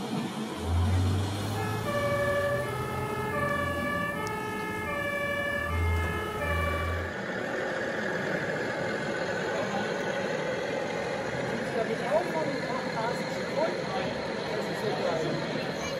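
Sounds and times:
low drone: 0:00.0 - 0:10.0
two-tone emergency sirens: 0:00.5 - 0:07.2.

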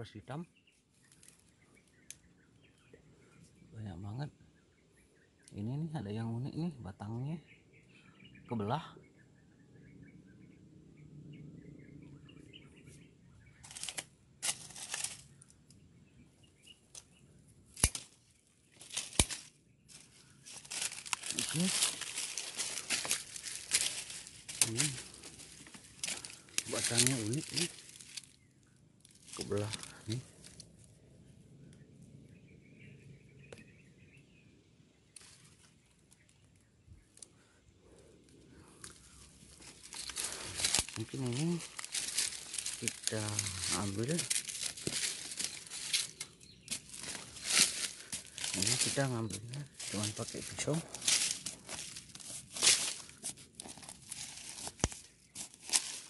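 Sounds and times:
faint bird chirps: 0:00.0 - 0:13.8, 0:19.6 - 0:51.1
dry leaves and branches rustling: 0:00.6 - 0:03.4, 0:12.8 - 0:31.1, 0:35.1 - 0:56.0.

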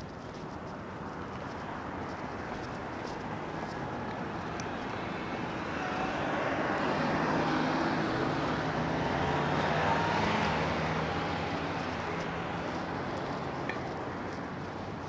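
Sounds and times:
car driving past: 0:05.6 - 0:12.4.

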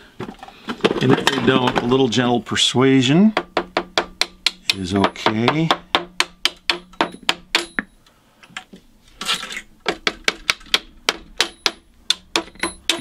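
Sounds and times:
fret hammer tapping metal hooks: 0:03.4 - 0:07.9, 0:09.8 - 0:13.0.

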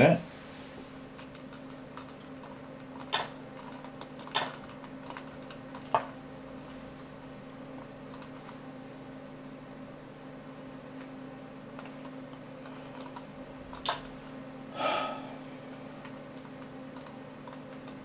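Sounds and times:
steady low hum: 0:00.0 - 0:18.0
computer mouse clicks: 0:01.2 - 0:06.2, 0:08.1 - 0:08.4, 0:11.8 - 0:14.1, 0:16.0 - 0:18.0.

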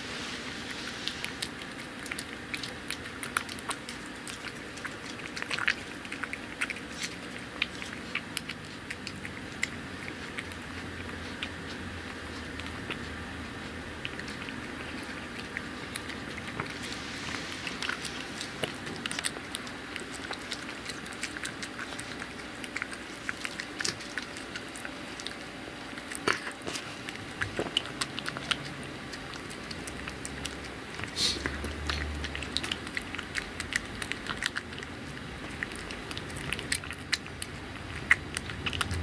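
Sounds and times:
cat chewing and licking: 0:00.0 - 0:39.0.

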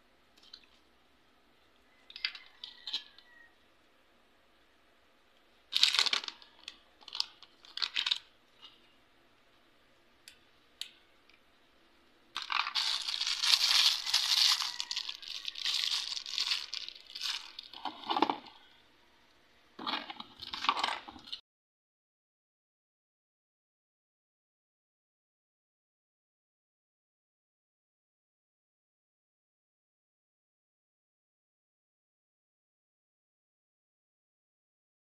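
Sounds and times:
plastic packaging crinkling: 0:05.7 - 0:08.8, 0:12.4 - 0:18.6.

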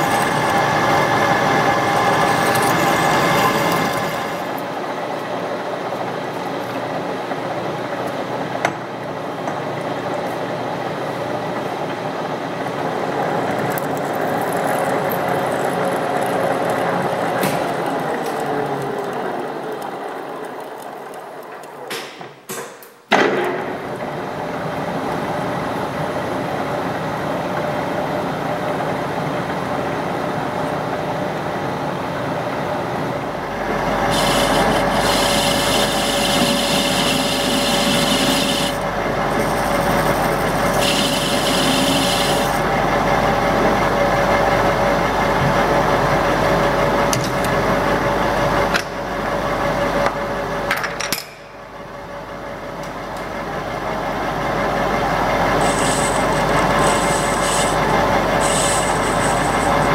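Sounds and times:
metal lathe running: 0:00.0 - 0:06.5, 0:12.6 - 0:20.1, 0:33.4 - 0:45.2, 0:53.9 - 0:59.9
hissing cutting noise: 0:34.1 - 0:38.8, 0:55.6 - 0:59.9.

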